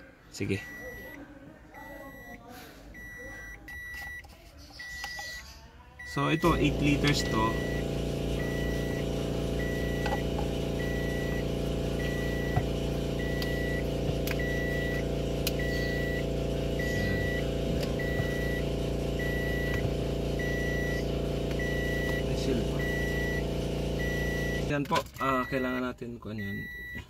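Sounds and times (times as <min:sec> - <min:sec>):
electronic warning beep: 0:00.6 - 0:01.2, 0:01.8 - 0:02.4, 0:03.0 - 0:27.0
steady low hum: 0:06.3 - 0:24.7.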